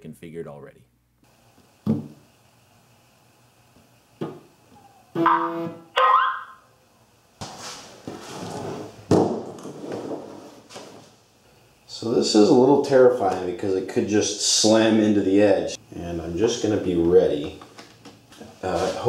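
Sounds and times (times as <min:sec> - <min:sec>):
knock on workbench: 0:01.9 - 0:02.2, 0:09.1 - 0:09.6
short pitched tones: 0:04.8 - 0:06.6
hardware scraping and clattering: 0:07.6 - 0:11.1.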